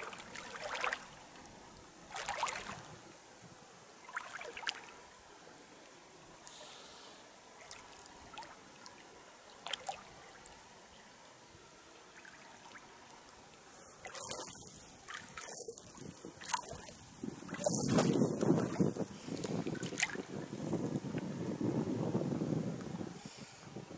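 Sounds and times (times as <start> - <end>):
water splashing and trickling: 0.0 - 21.3
wind rumble on microphone: 14.2 - 23.9.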